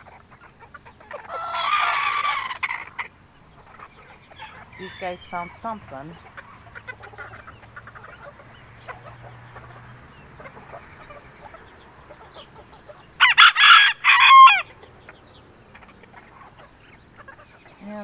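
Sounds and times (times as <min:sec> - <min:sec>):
chickens clucking: 0:00.0 - 0:18.0
rooster crowing: 0:01.3 - 0:02.8, 0:13.2 - 0:14.8.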